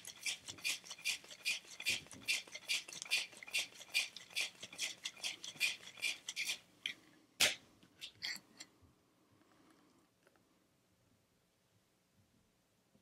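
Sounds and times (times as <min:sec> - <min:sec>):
cocktail shaker sloshing: 0:00.0 - 0:06.6.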